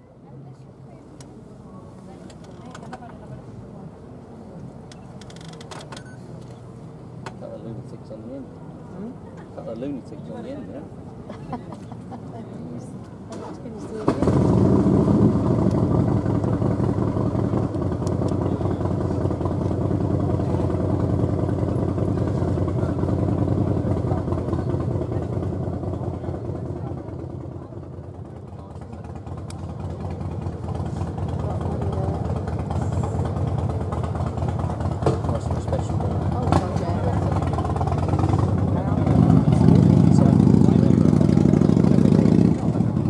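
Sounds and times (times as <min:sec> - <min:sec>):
engine running: 0:12.8 - 0:43.0.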